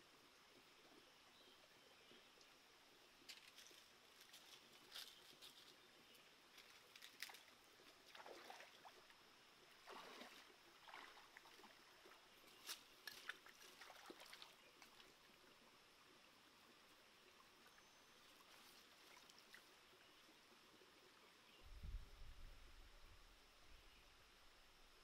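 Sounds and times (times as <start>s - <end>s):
stream hissing: 3.9s - 21.4s
splashes of wading in water: 7.2s - 9.1s, 9.8s - 15.1s.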